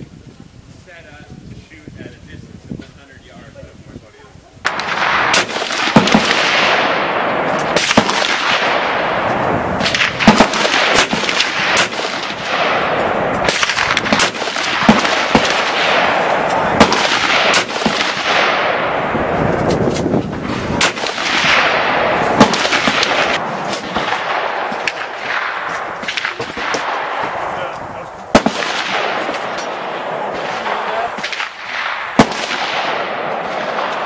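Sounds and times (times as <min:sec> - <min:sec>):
steady background noise: 0:00.0 - 0:34.0
gunshots: 0:04.6 - 0:34.0.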